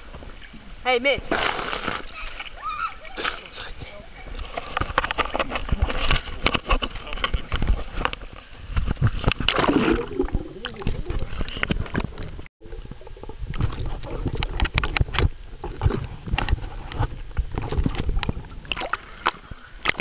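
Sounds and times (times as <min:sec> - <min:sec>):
water sloshing over microphone: 0:00.0 - 0:20.0.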